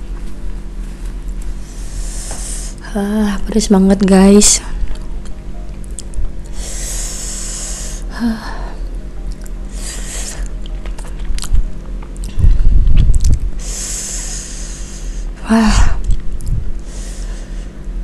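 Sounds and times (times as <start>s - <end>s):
hissing breaths sucked in: 6.6s - 8.1s
chewing with low thumps: 10.4s - 13.6s.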